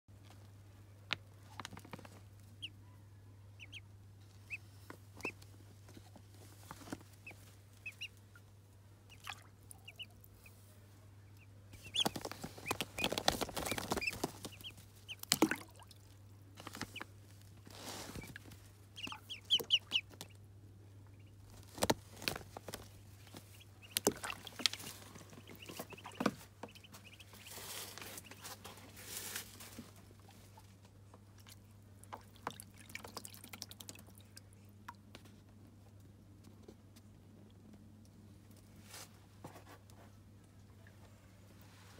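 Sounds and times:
faint low hum: 0.1 - 41.9
ducklings peeping: 2.3 - 2.8, 3.4 - 5.6, 6.3 - 16.1, 18.0 - 29.5.

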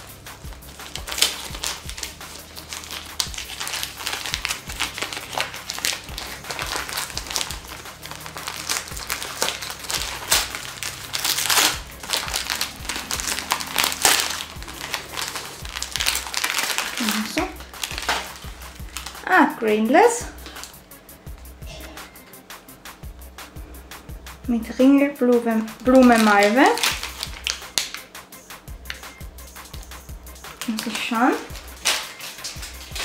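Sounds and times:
wrapping paper crinkling: 0.0 - 19.4, 25.3 - 28.1, 28.9 - 33.0.

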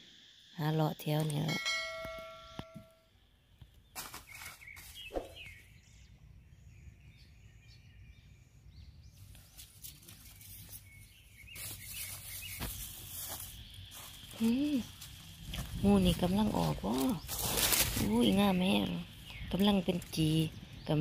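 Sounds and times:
footsteps in dry leaves: 4.0 - 5.4, 9.4 - 20.8.

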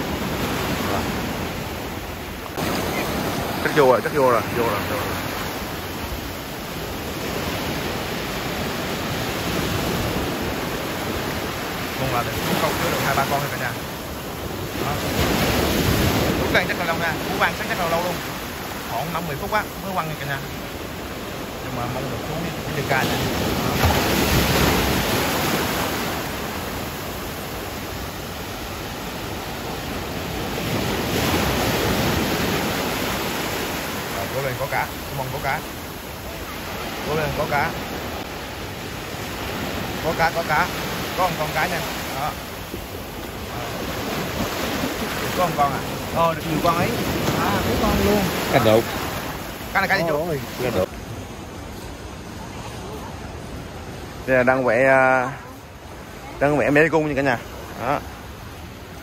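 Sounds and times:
sea surf rushing: 0.0 - 59.0
wind: 0.0 - 59.0.

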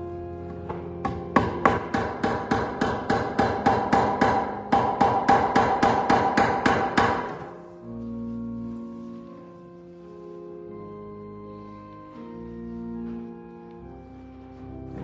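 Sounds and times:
soft music: 0.0 - 15.0
hammer driving nail into wood: 0.7 - 7.5.

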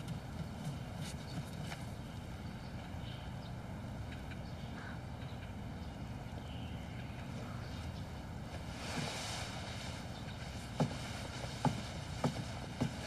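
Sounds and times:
low ambient rumble: 0.0 - 13.0
hiss: 8.6 - 13.0
short knocks: 10.6 - 13.0.

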